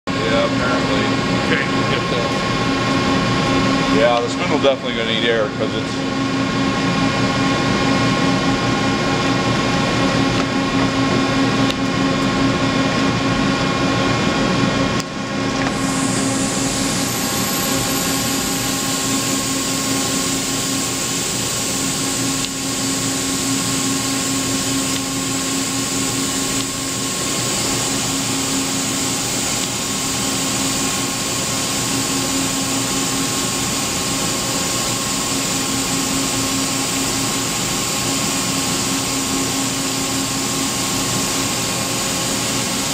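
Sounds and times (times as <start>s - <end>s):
lathe mechanical hum: 0.1s - 42.9s
thin high whine: 15.7s - 42.9s.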